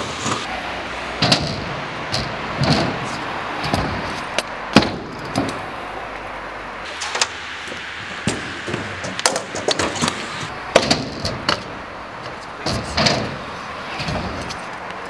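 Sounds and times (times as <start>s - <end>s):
scooter wheels rolling: 0.0s - 15.0s
scooter clacks and knocks: 1.2s - 5.6s, 8.3s - 15.0s.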